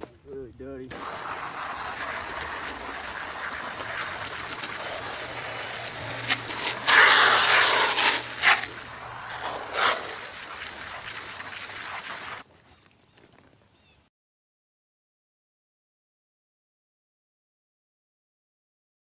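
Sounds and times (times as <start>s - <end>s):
water spraying from a hose: 0.9s - 12.5s.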